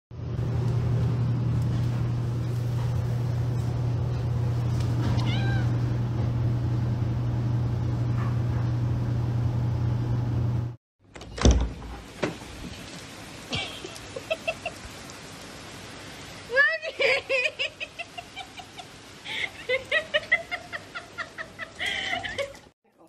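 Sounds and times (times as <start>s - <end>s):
cat meowing: 5.0s - 5.9s.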